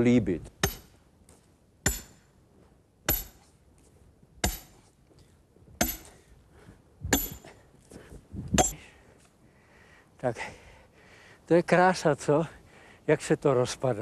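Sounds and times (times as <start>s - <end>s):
axe chopping wood: 0.6s - 1.0s, 1.8s - 2.3s, 3.1s - 3.5s, 4.4s - 4.8s, 5.8s - 6.2s, 7.1s - 7.6s, 8.5s - 8.8s.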